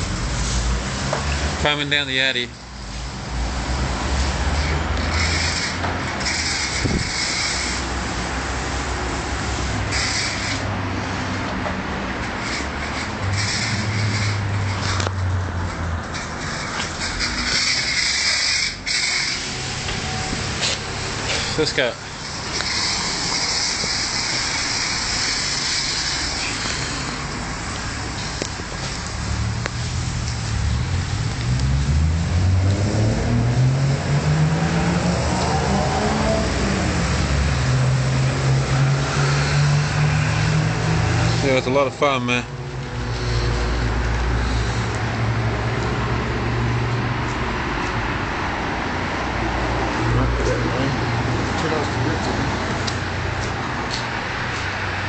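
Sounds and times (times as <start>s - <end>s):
pressure wand spraying hiss: 5.2s - 10.7s, 17.2s - 31.3s.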